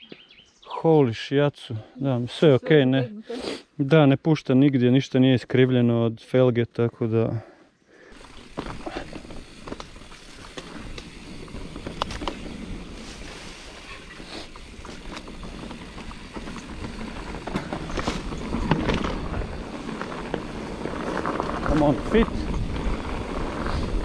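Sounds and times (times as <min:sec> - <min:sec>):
bike tyre noise: 0:08.1 - 0:24.0
bike clicks and rattles: 0:08.2 - 0:24.0
wind rumble on microphone: 0:17.9 - 0:24.0.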